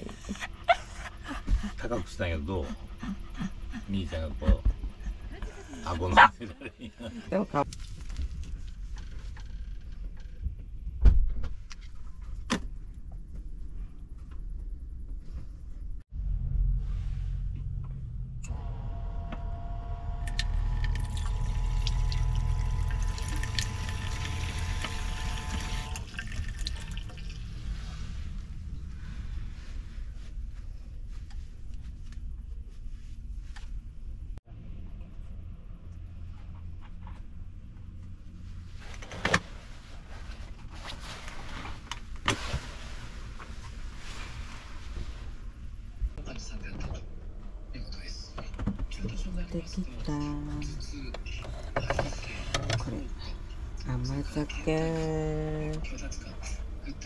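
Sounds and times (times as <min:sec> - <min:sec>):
tap water running into basin: 0:20.8 - 0:27.4.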